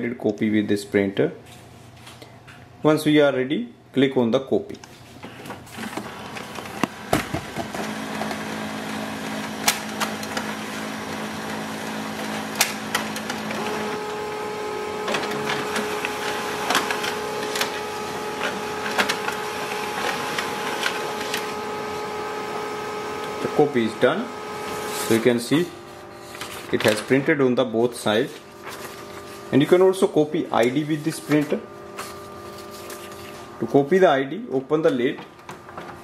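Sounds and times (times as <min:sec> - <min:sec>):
printer clicks and clunks: 0:05.8 - 0:27.4, 0:30.6 - 0:33.6, 0:34.8 - 0:36.0
laser printer motors whirring: 0:05.8 - 0:34.0.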